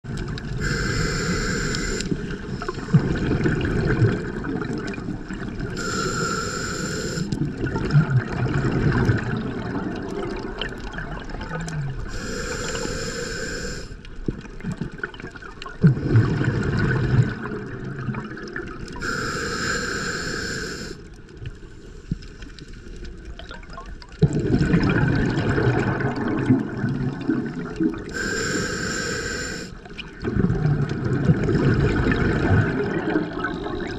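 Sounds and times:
exhaled air bubbling: 0.0s - 33.9s
regulator hiss on inhale: 0.6s - 3.0s, 5.8s - 7.4s, 12.1s - 14.1s, 19.0s - 23.0s, 28.1s - 29.9s.

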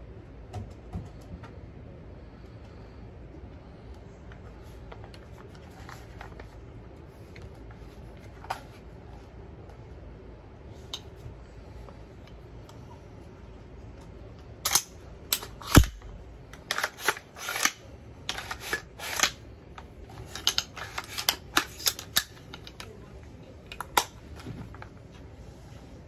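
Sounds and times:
metallic clicks of rifle handling: 14.6s - 19.4s.

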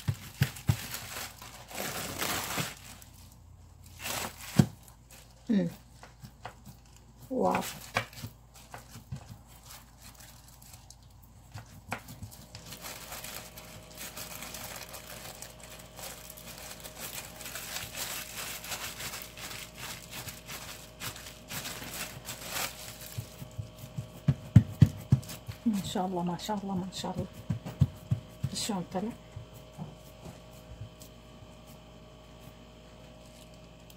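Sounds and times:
plastic sheet crinkling: 0.0s - 6.0s, 6.6s - 24.1s, 33.1s - 33.9s.

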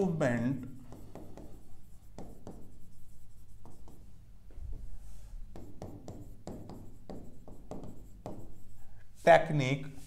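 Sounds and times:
stylus tapping and scratching glass: 5.6s - 8.5s.

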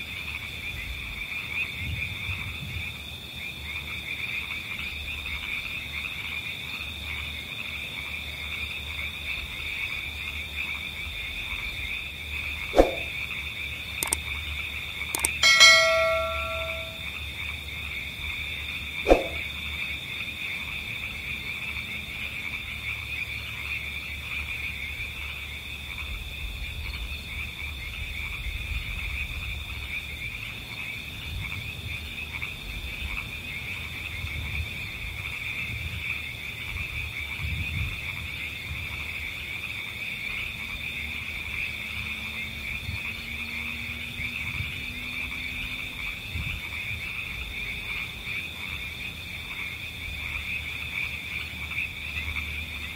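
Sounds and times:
chorus of calling frogs: 0.0s - 52.9s
sharp click: 15.2s - 17.0s.

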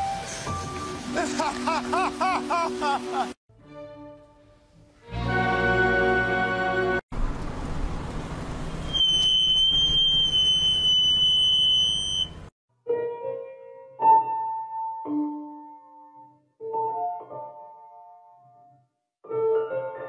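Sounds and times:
piano notes: 12.8s - 20.0s.

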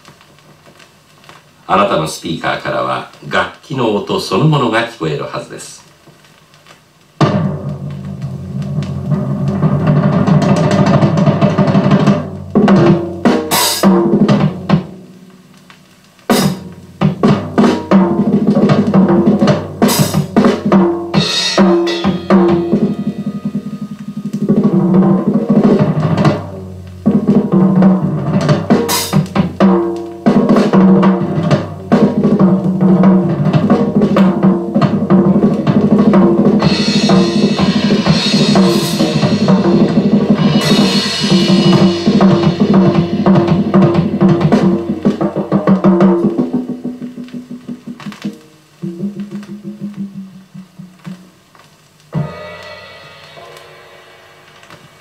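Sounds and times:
drum kit solo: 0.0s - 55.0s
cymbal crashes: 16.3s - 18.2s, 19.4s - 26.8s, 27.8s - 45.3s, 52.1s - 55.0s.

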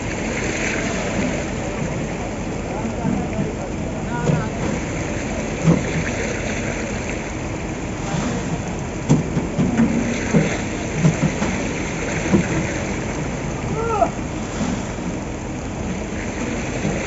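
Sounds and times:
wet concrete pouring: 0.0s - 17.0s
wheelbarrow knocks: 8.1s - 12.8s.

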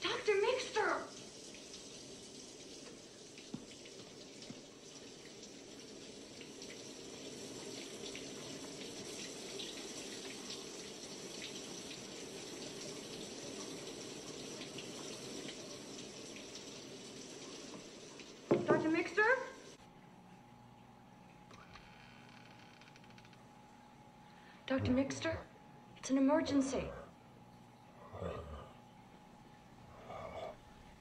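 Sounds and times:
water running: 0.0s - 31.0s
faint drips: 0.2s - 24.6s, 27.1s - 31.0s.

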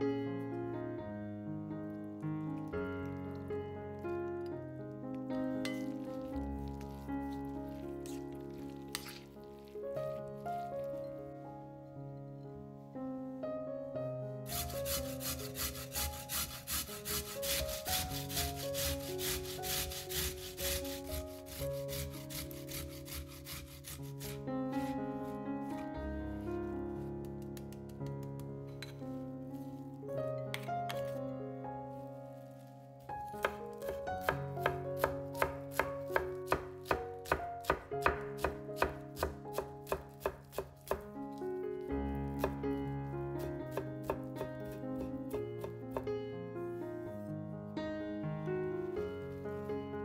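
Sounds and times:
soft background music: 0.0s - 50.0s
potato rasping on metal grater: 14.5s - 24.4s
knife chopping on wooden board: 14.9s - 24.4s, 33.4s - 41.0s, 43.7s - 46.1s.

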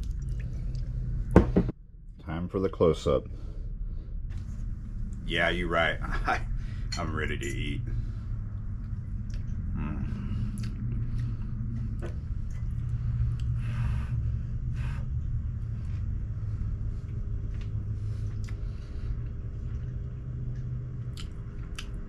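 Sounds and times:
low rumble: 0.0s - 22.0s
person chewing: 10.4s - 11.5s, 17.5s - 22.0s.

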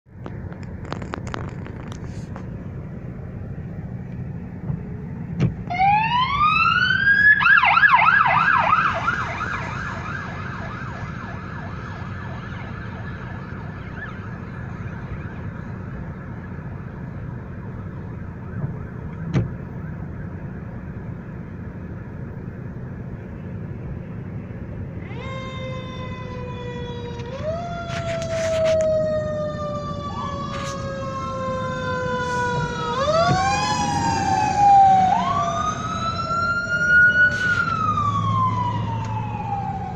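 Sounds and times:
emergency vehicle sirens: 0.2s - 39.9s
deep multi-tone siren: 5.6s - 22.1s, 24.9s - 39.9s.

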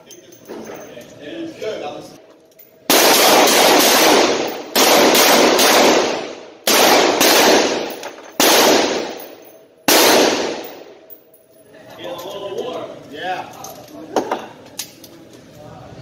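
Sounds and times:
handgun shots echoing indoors: 2.9s - 11.2s.

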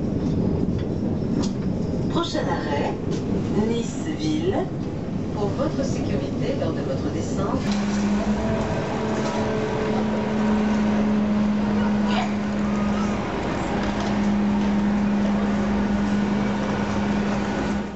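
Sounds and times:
traffic noise: 0.0s - 17.9s
low engine-like hum: 3.6s - 17.9s
distant voices: 5.4s - 17.9s.

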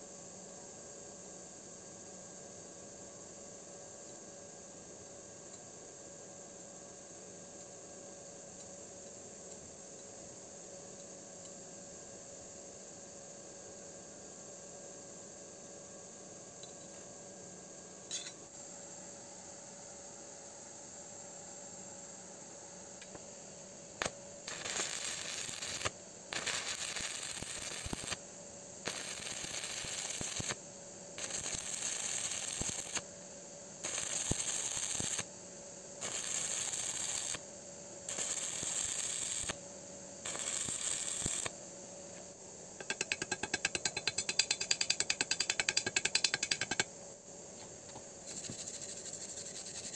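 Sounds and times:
welding arc crackling and hissing: 24.0s - 28.2s, 28.8s - 30.6s, 31.2s - 33.0s, 33.8s - 35.3s, 36.0s - 37.4s, 38.1s - 39.6s, 40.2s - 41.6s.

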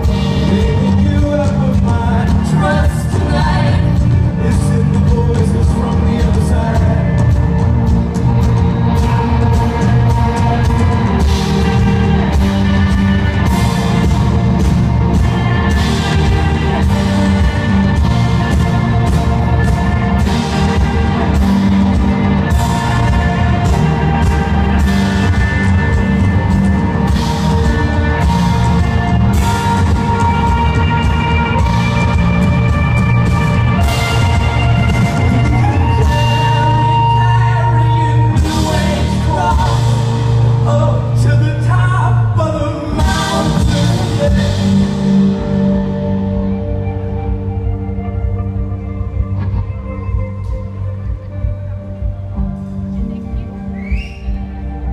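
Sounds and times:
drum kit beat: 0.0s - 41.2s, 42.9s - 47.5s
violin: 0.0s - 41.2s
bass guitar: 0.0s - 54.9s
electric guitars: 0.0s - 54.9s.

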